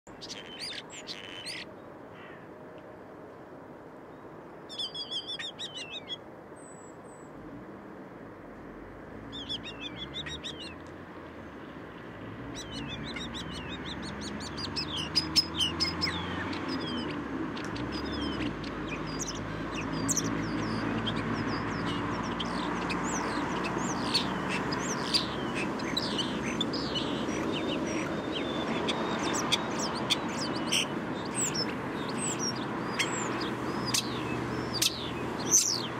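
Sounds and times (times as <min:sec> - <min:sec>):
starling singing: 0:00.1 - 0:01.7, 0:09.3 - 0:10.8, 0:12.4 - 0:35.9
rumble of city noise: 0:00.1 - 0:35.9.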